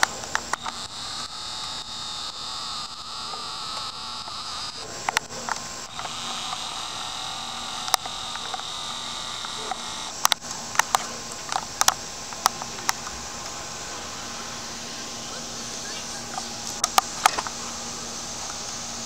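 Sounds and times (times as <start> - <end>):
insect chorus hissing: 0.0 - 19.0.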